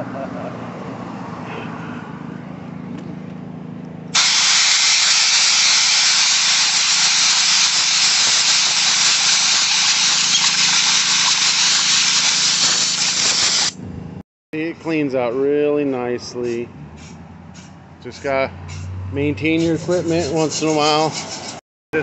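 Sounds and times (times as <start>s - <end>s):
compressed air blowgun hissing: 4.2s - 13.7s.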